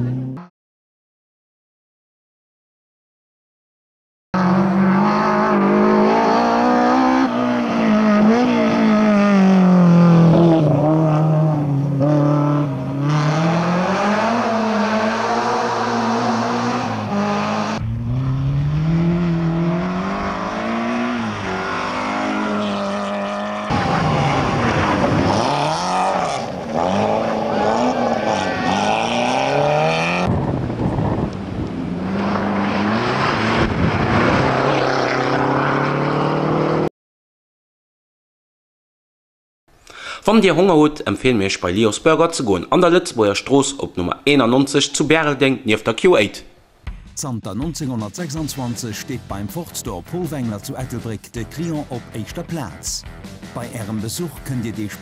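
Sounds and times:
rally car engines revving: 4.4s - 36.9s.

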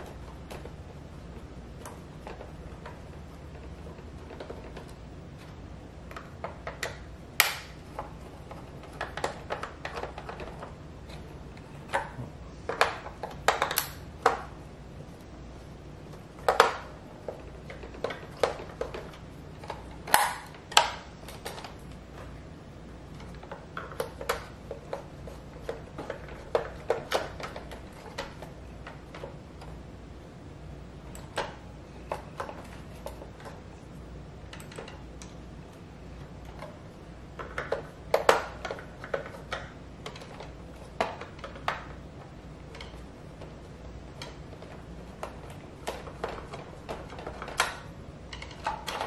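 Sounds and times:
plastic parts handled: 0.0s - 15.2s, 31.1s - 49.0s.

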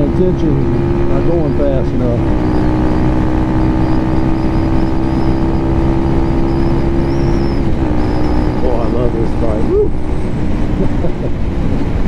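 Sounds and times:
motorcycle engine cruising: 0.0s - 12.0s
road noise: 0.0s - 12.0s
rush of wind: 9.6s - 12.0s.

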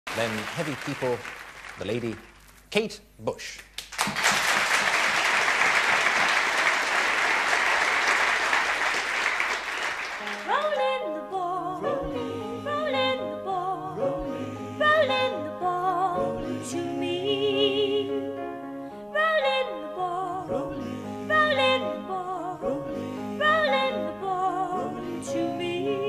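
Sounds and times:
audience applauding: 0.0s - 2.4s, 3.7s - 10.8s
grand piano: 9.3s - 26.0s
woman singing with vibrato: 10.3s - 18.2s.

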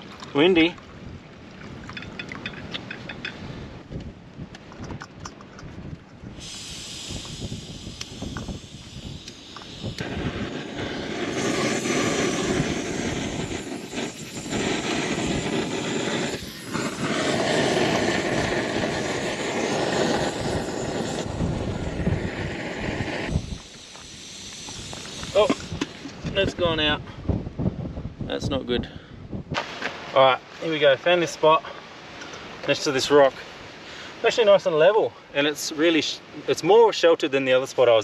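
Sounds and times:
gas stove burner hissing: 6.3s - 26.5s.

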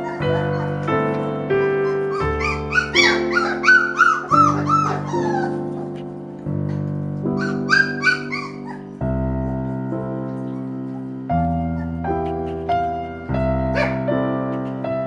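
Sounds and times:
puppies yipping and whimpering: 0.0s - 0.9s, 1.8s - 6.0s, 7.4s - 9.0s, 13.7s - 14.8s
background music: 0.0s - 15.0s.

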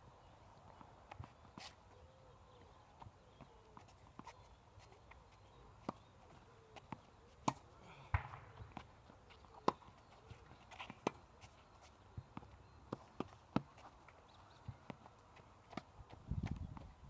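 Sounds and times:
tennis ball struck and bouncing: 6.8s - 9.9s.

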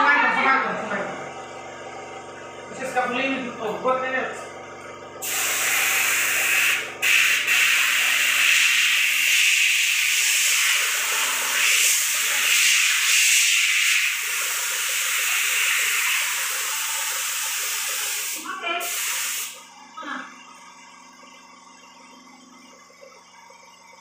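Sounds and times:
paint spray gun hissing: 5.2s - 19.7s.

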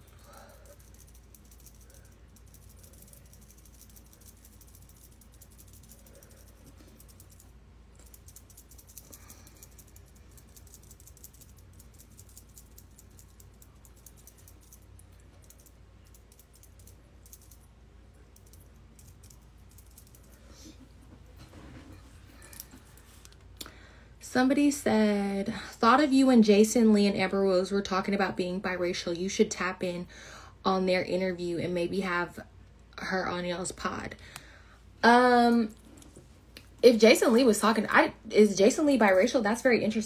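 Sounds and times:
rapid clicking and tapping: 0.0s - 17.6s.

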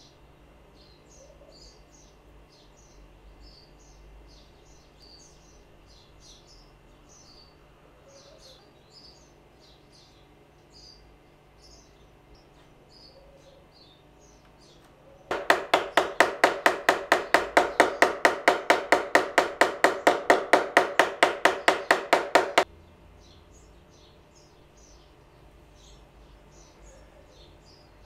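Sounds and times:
birds chirping faintly: 0.0s - 28.0s
small hammer tapping wood: 15.3s - 22.7s.

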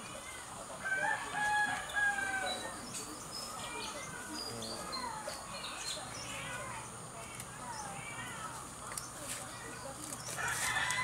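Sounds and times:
small birds chirping faintly: 0.0s - 11.0s.

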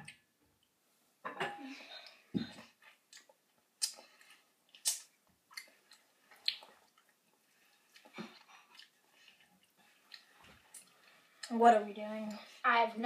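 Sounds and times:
person biting and sucking lemon: 4.8s - 5.7s.

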